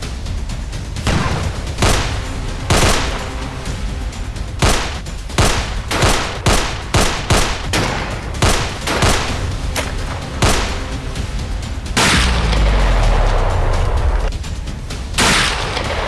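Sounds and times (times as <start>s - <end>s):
low background music: 0.0s - 16.0s
rifle shots: 1.1s - 3.6s, 4.6s - 11.0s, 12.0s - 14.3s, 15.2s - 16.0s.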